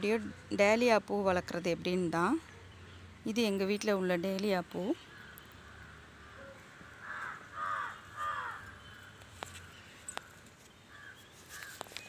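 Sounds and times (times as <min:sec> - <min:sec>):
bird harsh caw-like calls: 0:05.0 - 0:12.0.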